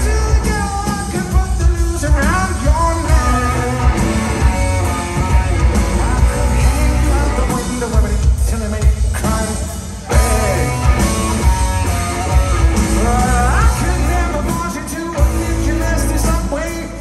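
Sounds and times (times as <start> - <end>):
person singing: 0.0 - 11.6, 12.2 - 17.0
live rock band playing: 0.0 - 17.0.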